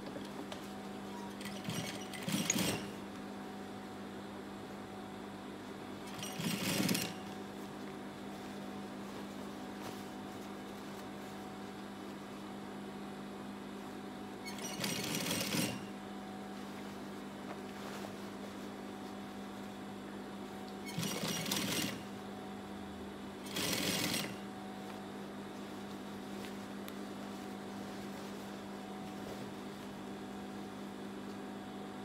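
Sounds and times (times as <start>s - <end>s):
sewing machine stitching: 1.2s - 3.0s, 6.1s - 7.2s, 14.5s - 15.9s, 20.9s - 22.1s, 23.4s - 24.4s
steady low hum: 15.7s - 20.9s, 24.2s - 32.0s.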